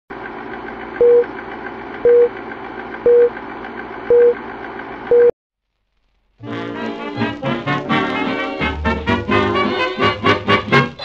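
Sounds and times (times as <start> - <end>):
ticking projector whirr: 0.1 - 5.2
brassy swing music: 6.4 - 11.0.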